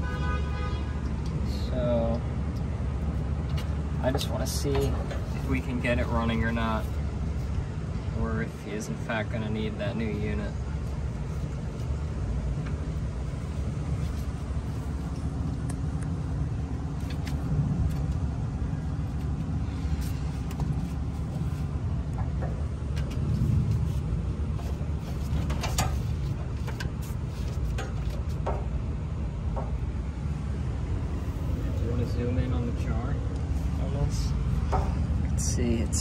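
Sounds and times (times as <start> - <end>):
steady low rumble: 0.0 - 36.0.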